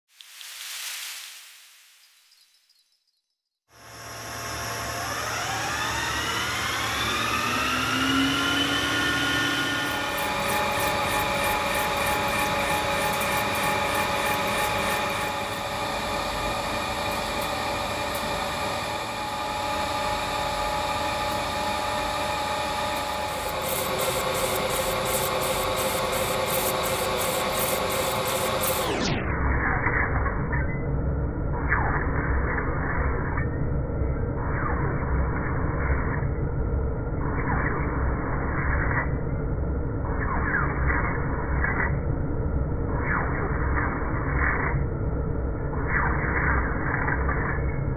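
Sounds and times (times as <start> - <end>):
lathe motor whine: 3.7 - 29.5.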